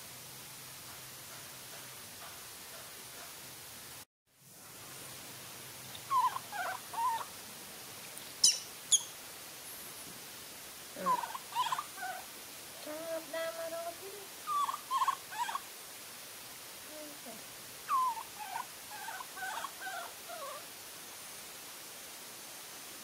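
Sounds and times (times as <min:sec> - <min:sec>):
baby macaque squeaky calls: 0:06.0 - 0:07.3, 0:08.4 - 0:09.2, 0:11.0 - 0:12.3, 0:14.5 - 0:15.6, 0:17.9 - 0:20.6.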